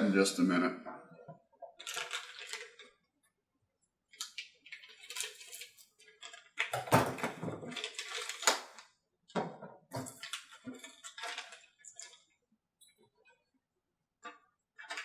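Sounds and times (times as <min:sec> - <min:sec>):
plastic bag crinkling: 0:01.8 - 0:03.0, 0:07.4 - 0:08.8.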